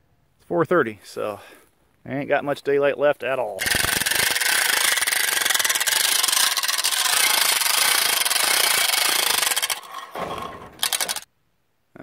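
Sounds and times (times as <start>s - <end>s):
winch winding in cable: 3.6s - 11.3s.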